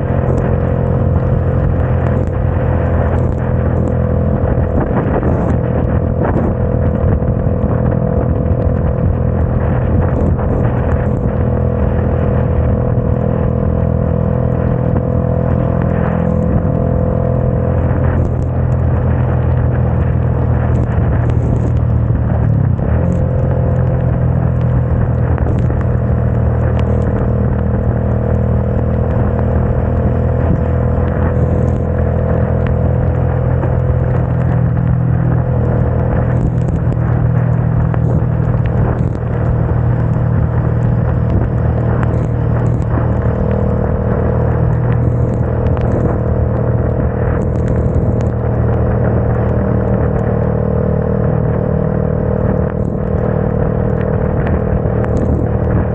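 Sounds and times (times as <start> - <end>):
motorcycle engine cruising: 0.0 - 55.9
tyres on wet road: 0.0 - 55.9
wind rush: 0.0 - 55.9.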